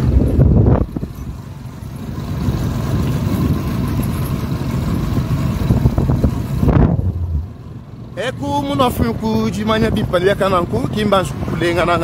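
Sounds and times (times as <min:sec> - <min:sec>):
wind rumble on microphone: 0:00.0 - 0:07.7, 0:08.8 - 0:12.0
motorcycle engine running: 0:00.0 - 0:08.2.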